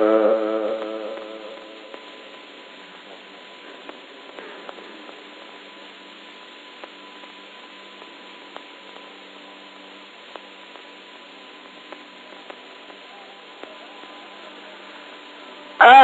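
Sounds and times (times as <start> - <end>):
recording hiss and hum: 0.0 - 16.0
scattered clicks: 0.6 - 5.6, 11.6 - 15.3.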